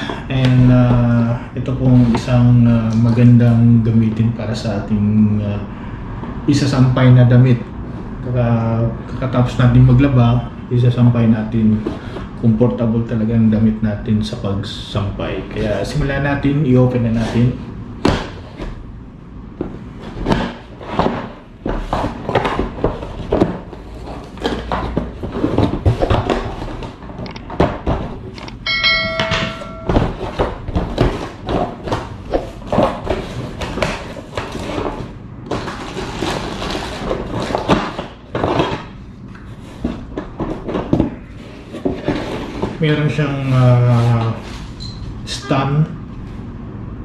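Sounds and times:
knocks and thunks of unpacking: 0:17.1 - 0:18.8, 0:19.6 - 0:42.9
brief ringing tone: 0:28.6 - 0:30.1.

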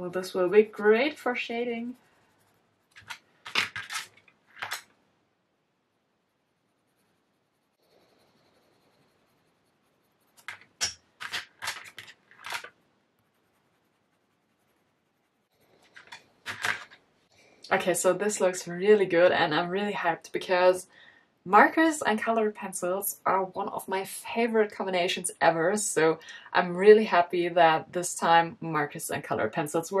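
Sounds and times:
colored pencil scratching on paper: 0:00.0 - 0:03.9, 0:06.2 - 0:16.4.

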